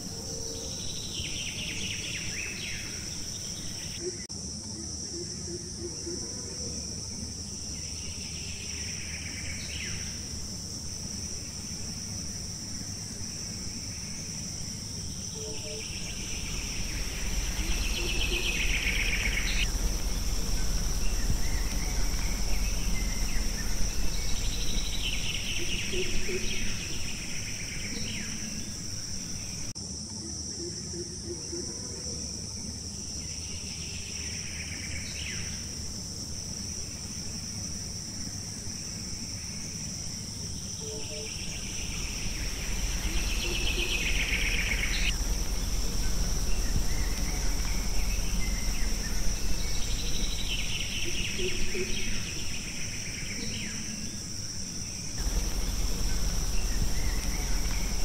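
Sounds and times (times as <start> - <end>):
high-pitched insect drone: 0.0 - 58.0
loud insect buzzing call: 7.9 - 29.7, 38.6 - 58.0
low rumble: 15.8 - 27.4, 41.5 - 52.6, 55.2 - 58.0.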